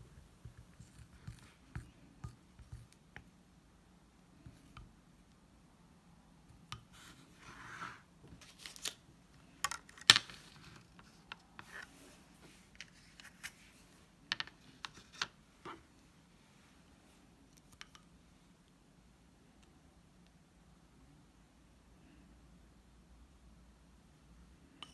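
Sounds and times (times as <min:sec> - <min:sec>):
bowl set on table: 0:24.6 - 0:24.9.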